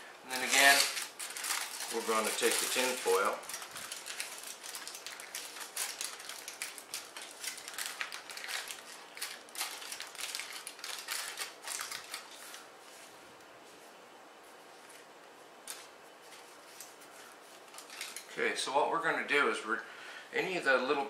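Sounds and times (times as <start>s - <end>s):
aluminium foil crinkling: 0.3s - 13.0s, 15.6s - 18.5s.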